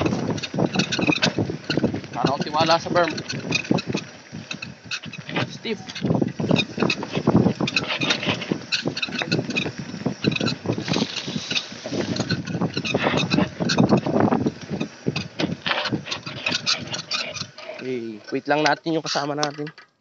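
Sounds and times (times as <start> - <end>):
wind on microphone: 0.0 - 18.6
mountain bike rattling on trail: 0.0 - 20.0.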